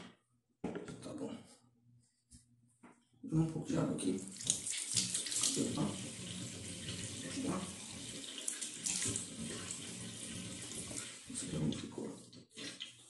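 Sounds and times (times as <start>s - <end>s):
hand splashing water: 4.2s - 6.0s
tap water running into sink: 4.2s - 13.0s.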